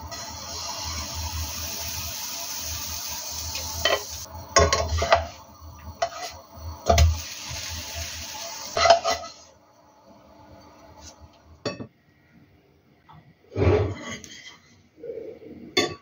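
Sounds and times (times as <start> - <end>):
batter sizzling in frying pan: 0.0 - 11.6
spatula scraping a pan: 3.8 - 5.4, 6.0 - 7.1, 8.7 - 9.5, 13.6 - 14.7.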